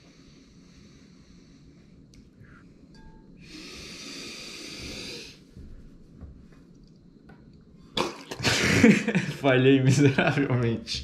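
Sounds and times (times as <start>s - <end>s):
person breathing in: 3.4s - 5.5s.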